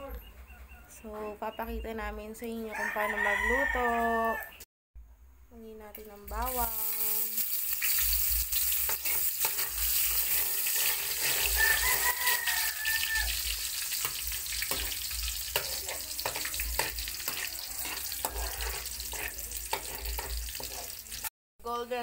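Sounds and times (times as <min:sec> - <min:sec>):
garlic sizzling in hot oil: 0:06.0 - 0:21.3
metal spatula scraping pan: 0:06.6 - 0:21.2.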